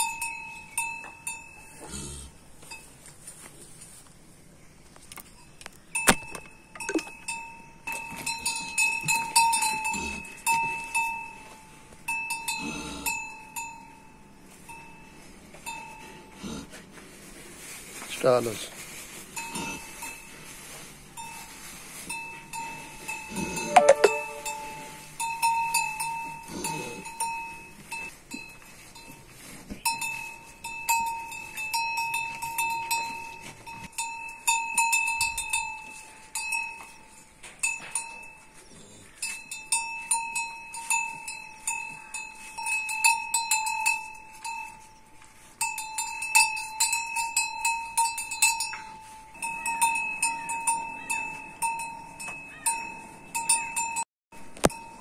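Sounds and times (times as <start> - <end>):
cowbell clanking: 0.0 - 1.8, 6.0 - 16.3, 22.1 - 38.6, 39.2 - 54.0, 54.6 - 55.0.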